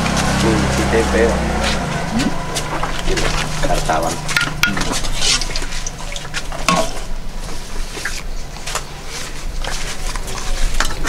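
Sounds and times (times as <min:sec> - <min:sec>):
banana leaf rustling: 0:00.0 - 0:11.0
steady low hum: 0:00.0 - 0:11.0
spoon tapping bowls and pots: 0:04.3 - 0:05.5.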